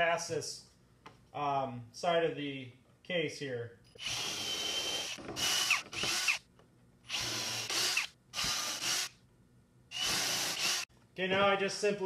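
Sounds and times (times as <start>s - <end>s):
cordless drill whining: 3.9s - 6.4s, 7.1s - 9.1s, 9.9s - 10.9s.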